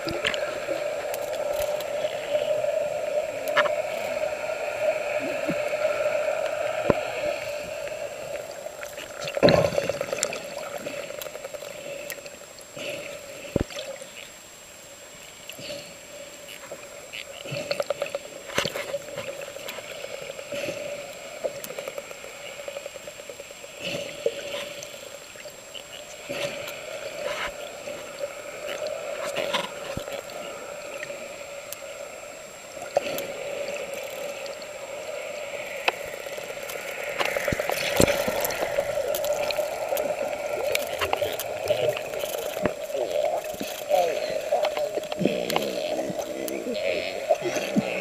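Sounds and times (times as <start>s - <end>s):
underwater hum: 0.0s - 48.0s
sharp underwater clicks: 35.6s - 47.9s.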